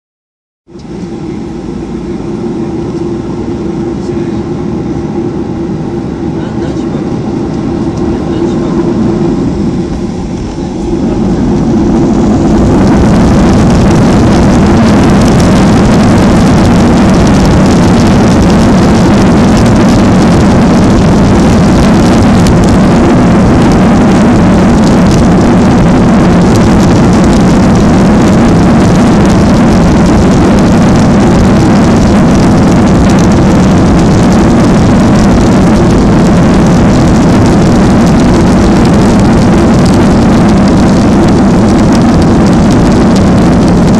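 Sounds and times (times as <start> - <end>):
jet engines at takeoff thrust: 0.7 - 43.9.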